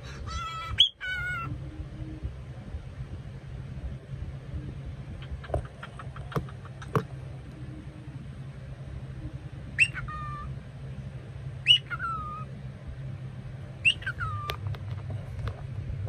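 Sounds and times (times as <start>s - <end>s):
cockatiel whistled calls: 9.8s - 10.5s, 11.6s - 12.5s, 13.8s - 14.6s.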